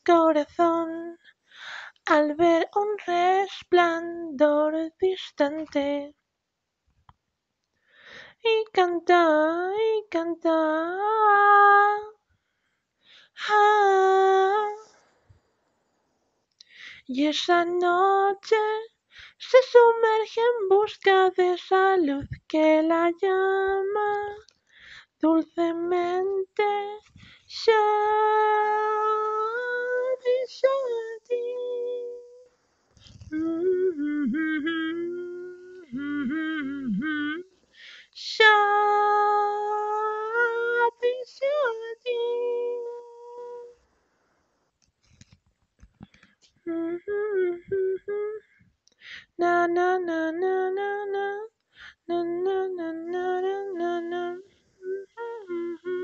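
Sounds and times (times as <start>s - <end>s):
short breath: 1.4s - 2.0s, 7.8s - 8.4s, 12.4s - 13.4s, 19.1s - 19.4s, 24.6s - 25.2s, 27.1s - 27.5s, 37.6s - 38.2s, 48.5s - 49.4s, 51.7s - 52.0s
person singing wordless melody: 27.6s - 32.4s, 33.2s - 37.5s, 46.7s - 48.5s, 49.2s - 56.0s.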